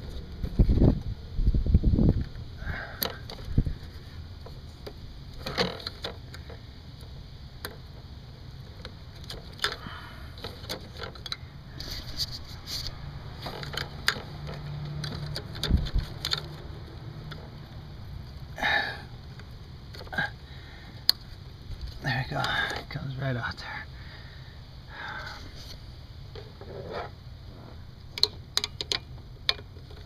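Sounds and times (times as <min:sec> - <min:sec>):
steady low hum: 0:00.0 - 0:30.0
clicks of plastic connectors: 0:13.4 - 0:16.7.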